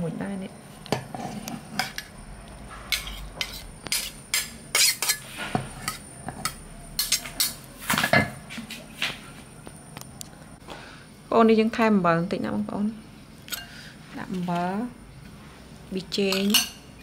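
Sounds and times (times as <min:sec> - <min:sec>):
utensils clinking on pots: 0:02.9 - 0:08.4, 0:13.5 - 0:13.8, 0:16.2 - 0:16.9.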